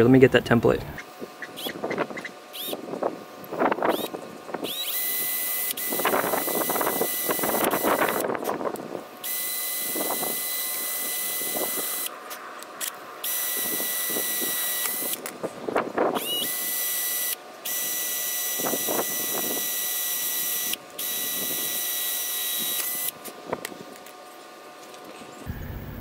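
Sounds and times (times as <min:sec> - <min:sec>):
cordless drill boring metal: 0:02.5 - 0:02.8, 0:03.8 - 0:08.2, 0:09.2 - 0:12.1, 0:13.2 - 0:15.2, 0:16.2 - 0:23.2
drill clicks: 0:03.8 - 0:08.3, 0:12.8 - 0:15.4, 0:16.2 - 0:24.1.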